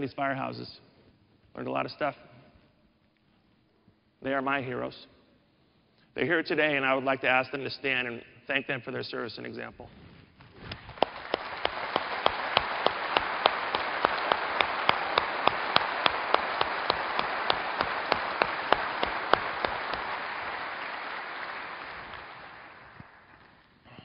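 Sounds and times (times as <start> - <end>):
large audience applauding: 10.7 - 23.8
close sharp hand claps: 10.7 - 24.0.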